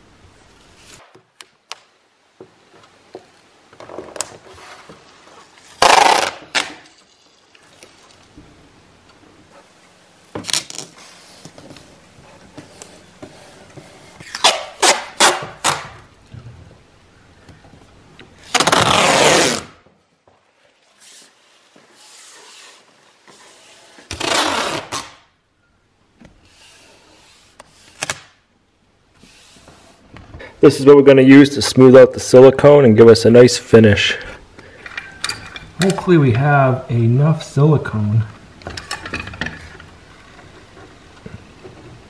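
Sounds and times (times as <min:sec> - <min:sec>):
tape ripping off roll: 0:00.7 - 0:01.9, 0:05.5 - 0:08.2, 0:10.2 - 0:11.9, 0:14.1 - 0:16.1, 0:18.4 - 0:19.9, 0:23.9 - 0:25.3
tape crackling: 0:02.9 - 0:08.4, 0:10.2 - 0:16.3, 0:18.1 - 0:19.9, 0:24.0 - 0:25.3.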